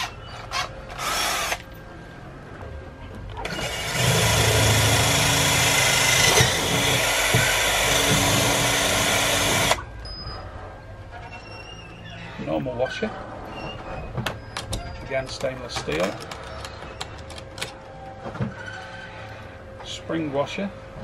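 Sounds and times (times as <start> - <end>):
drill boring through fibreglass: 0.0 - 1.6, 3.4 - 9.8.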